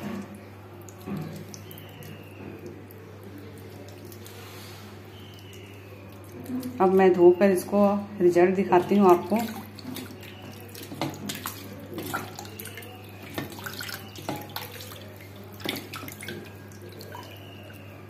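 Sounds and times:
water dripping: 0.0 - 18.0
hands splashing in water: 8.8 - 17.9.

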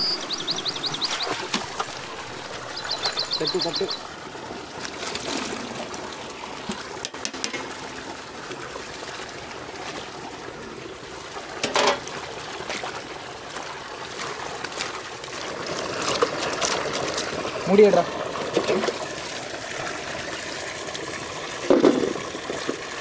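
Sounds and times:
water splashing into metal pot: 6.6 - 8.0, 11.6 - 12.1.

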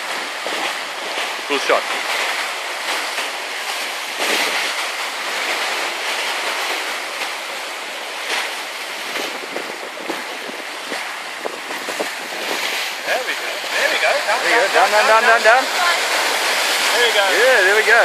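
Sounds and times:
water rushing along a hull: 0.0 - 18.0
wind: 0.0 - 18.0.

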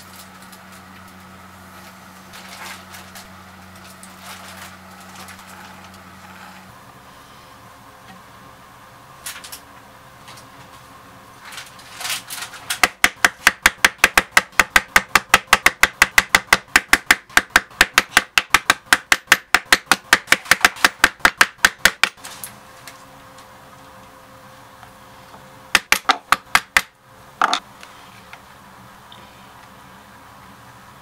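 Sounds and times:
mallet striking leather chisel: 12.8 - 22.2, 25.8 - 27.6.

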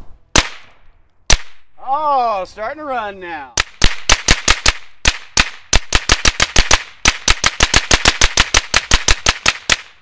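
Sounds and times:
rapid semi-automatic gunshots: 3.6 - 10.0.

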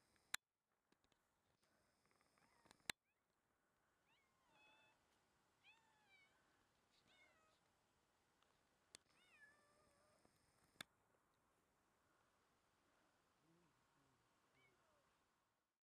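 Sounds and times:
kittens meowing: 4.0 - 5.0, 5.6 - 7.6, 9.1 - 10.3.

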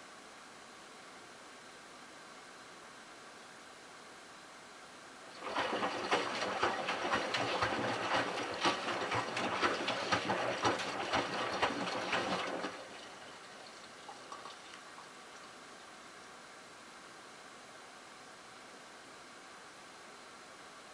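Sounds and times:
water sloshing and splashing: 5.3 - 15.1
low machine hum: 5.3 - 15.6
washing machine drum turning: 5.4 - 13.0.

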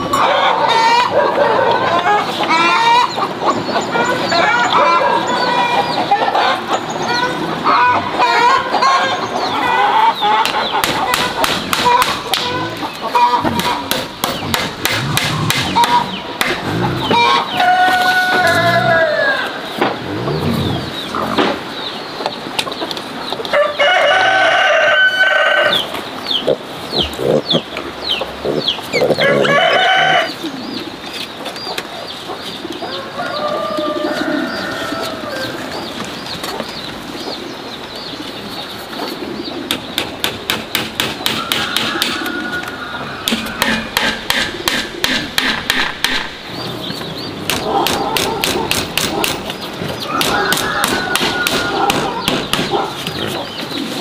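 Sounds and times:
chickens calling: 0.0 - 54.0
rooster crowing: 17.2 - 19.6, 23.6 - 25.8, 29.1 - 30.4, 32.9 - 35.7, 41.4 - 43.6, 50.0 - 52.2.

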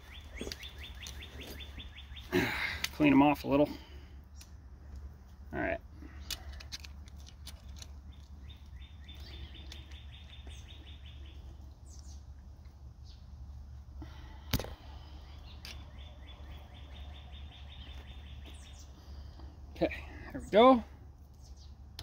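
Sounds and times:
songbird trilling: 0.0 - 2.3, 8.1 - 12.2, 15.2 - 19.1
steady low hum: 0.0 - 22.0.

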